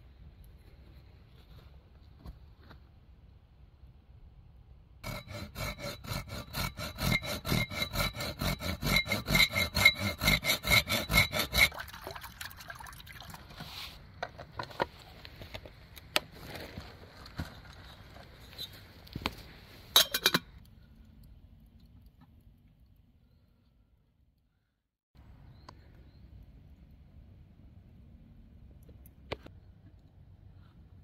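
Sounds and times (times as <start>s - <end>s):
bow saw cutting stick: 5.0s - 11.8s
water pouring into metal pot: 11.7s - 13.6s
metal kettle clinking: 20.0s - 20.5s.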